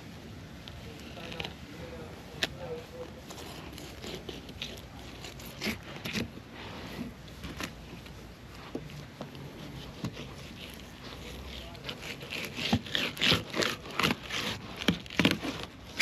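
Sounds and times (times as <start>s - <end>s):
knife cutting through fish bones: 3.3s - 7.9s, 9.4s - 16.0s.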